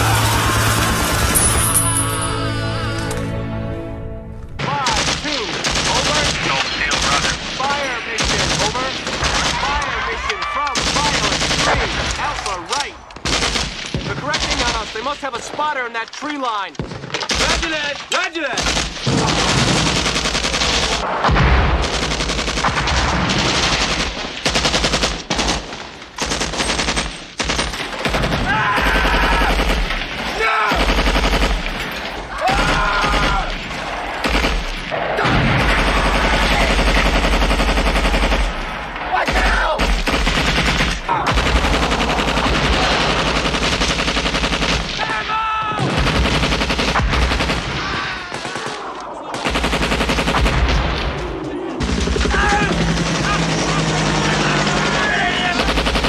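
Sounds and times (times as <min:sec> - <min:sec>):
automatic gunfire: 0:10.7 - 0:12.0, 0:13.2 - 0:14.9, 0:18.6 - 0:45.0, 0:45.9 - 0:50.8, 0:51.8 - 0:56.0
men shouting: 0:30.3 - 0:30.9, 0:32.3 - 0:33.6, 0:39.1 - 0:39.8, 0:52.2 - 0:55.7.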